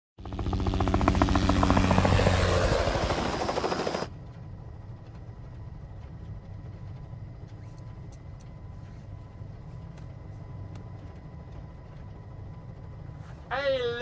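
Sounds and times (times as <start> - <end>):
helicopter rotor blades chopping: 0.2 - 14.0.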